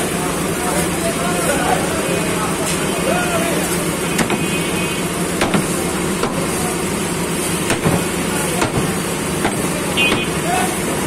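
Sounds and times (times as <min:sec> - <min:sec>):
cleaver chopping on wooden block: 0:05.4 - 0:06.4, 0:07.7 - 0:08.0, 0:08.6 - 0:10.3.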